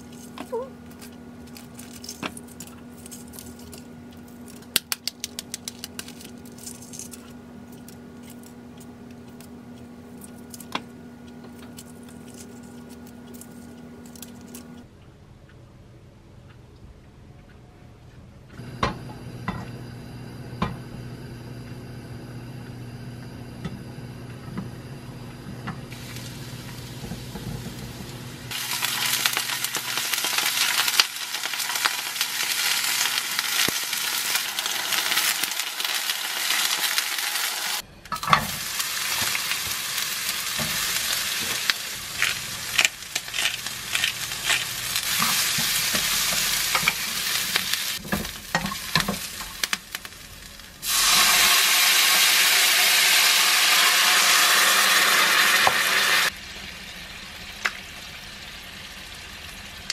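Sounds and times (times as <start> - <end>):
low hum: 5.3 - 28.6
food sizzling in frying pan: 25.9 - 59.9.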